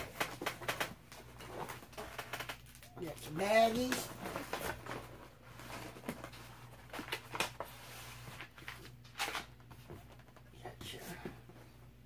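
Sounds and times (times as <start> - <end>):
plastic bags rustling: 0.0 - 9.5.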